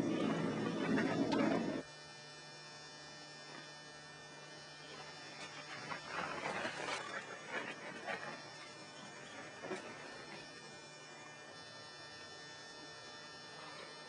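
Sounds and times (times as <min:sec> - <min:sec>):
rough scraping: 0:00.0 - 0:01.8.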